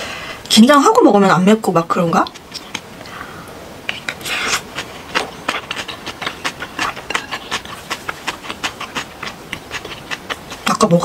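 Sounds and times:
noodles being chewed: 2.2s - 3.1s, 3.8s - 11.0s
wet mouth clicks: 2.2s - 3.1s, 3.8s - 10.9s
slurp: 3.9s - 10.7s.

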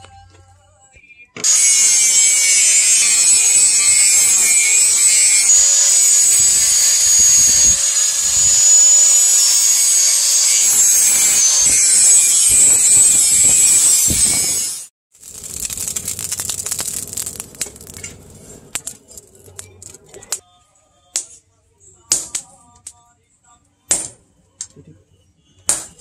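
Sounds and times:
angle grinder grinding steel: 1.4s - 20.4s.

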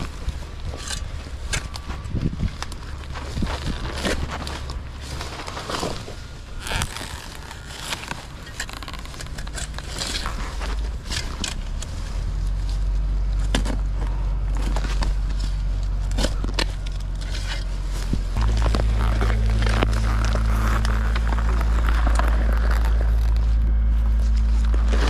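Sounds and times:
low rumble: 0.0s - 25.0s.

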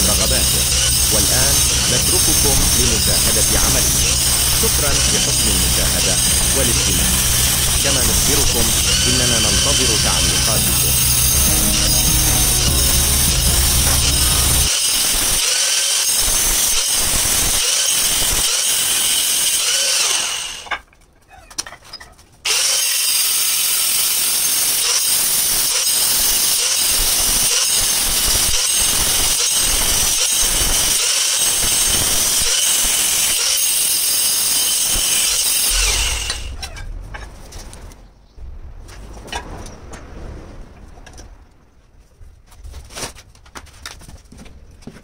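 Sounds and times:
angle grinder cutting tile: 0.0s - 20.7s, 22.5s - 36.8s.

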